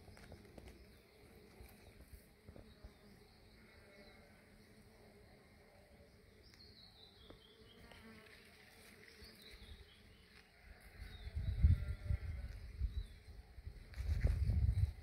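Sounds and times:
bee buzzing: 1.1s - 12.9s.

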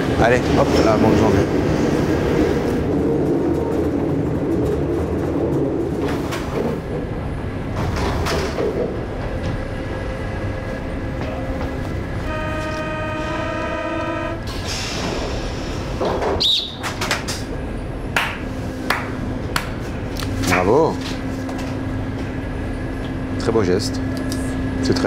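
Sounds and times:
metro train rumbling: 0.0s - 25.0s
train doors sliding shut: 5.5s - 17.6s
door warning buzzing tone: 12.3s - 14.5s.

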